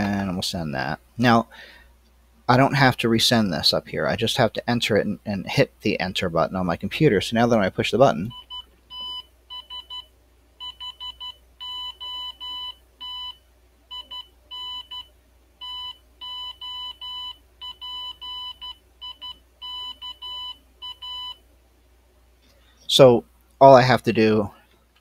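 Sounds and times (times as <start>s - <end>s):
morse code beeps: 10.6s - 21.4s.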